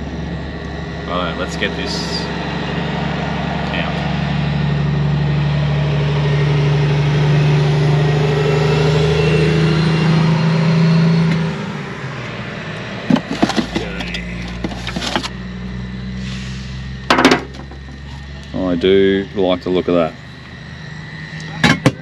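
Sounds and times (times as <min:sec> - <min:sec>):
vehicle engine idling: 0:00.0 - 0:22.0
metal tray clattering and scraping: 0:13.1 - 0:15.3.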